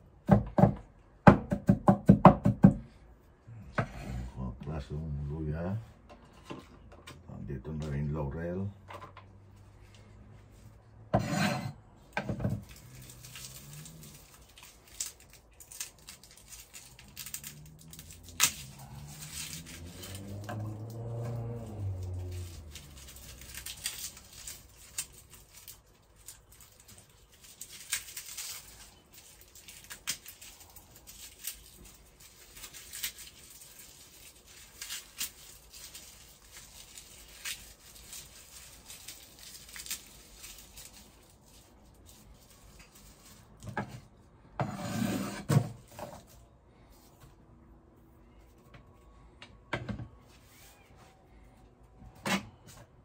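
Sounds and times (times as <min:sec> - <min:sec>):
garlic peeling crackles: 0:12.0 - 0:44.2.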